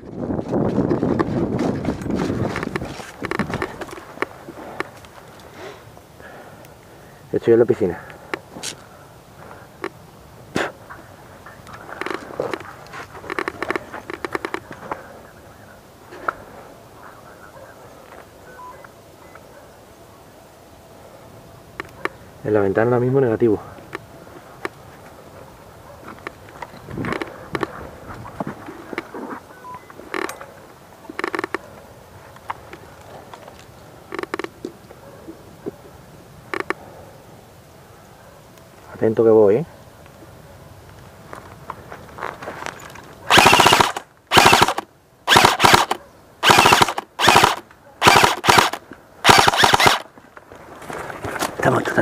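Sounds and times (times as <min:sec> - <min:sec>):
gear creaking and rattling: 0:00.0 - 0:05.5, 0:11.6 - 0:15.0, 0:42.1 - 0:50.1
footsteps on dirt and twigs: 0:00.0 - 0:05.6, 0:11.4 - 0:15.0, 0:26.0 - 0:30.5, 0:41.2 - 0:43.3, 0:48.5 - 0:52.0
crackling scuffs: 0:00.0 - 0:06.1, 0:40.0 - 0:43.4, 0:48.8 - 0:52.0
airsoft rifle full-auto bursts: 0:43.3 - 0:50.1.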